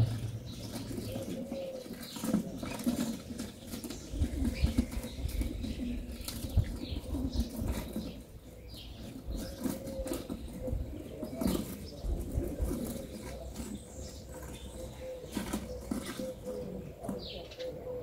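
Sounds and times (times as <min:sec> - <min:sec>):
low rumble: 0:00.0 - 0:01.1
doves cooing: 0:00.0 - 0:18.0
small birds chirping: 0:00.0 - 0:18.0.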